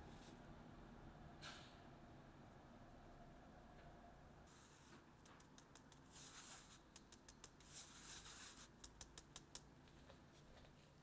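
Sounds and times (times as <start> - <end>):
fingers tapping on sieve: 5.2 - 6.1, 6.8 - 7.8, 8.6 - 9.8
flour rustling through sieve: 6.0 - 6.9, 7.6 - 8.8.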